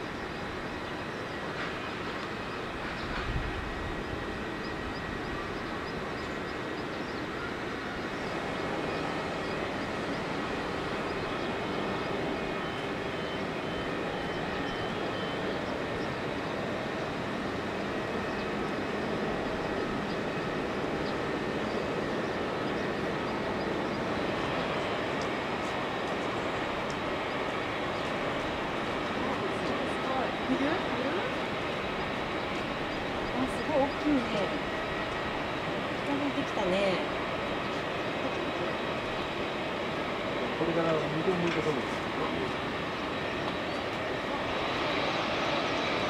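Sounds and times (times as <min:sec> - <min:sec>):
jet engines rumble and hiss: 0:00.0 - 0:46.0.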